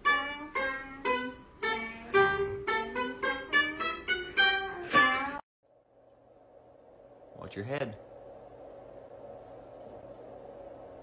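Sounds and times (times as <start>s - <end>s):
plucked lute melody: 0.0s - 5.4s.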